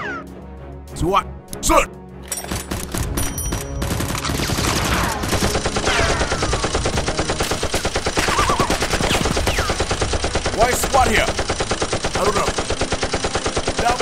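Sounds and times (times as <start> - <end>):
rapid automatic gunfire effects: 3.8 - 14.0.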